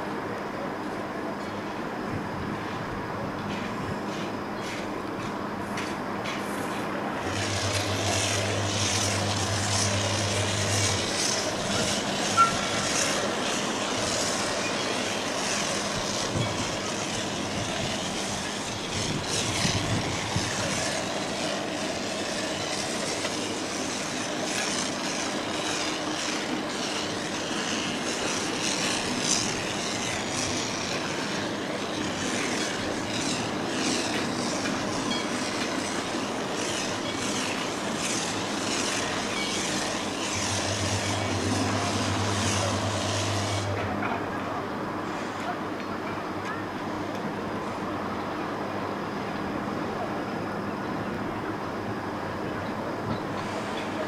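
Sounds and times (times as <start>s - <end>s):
diesel locomotive engine: 0.0s - 54.0s
train wheels clanking: 3.4s - 46.2s.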